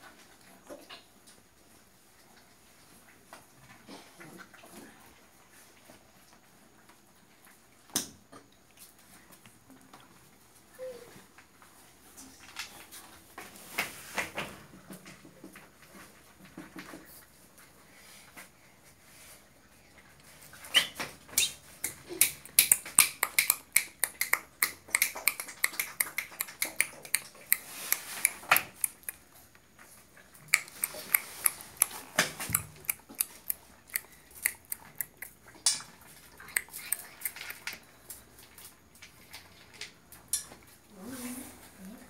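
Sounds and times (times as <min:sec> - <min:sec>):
puppy claws clicking on tiles: 0:20.7 - 0:40.6.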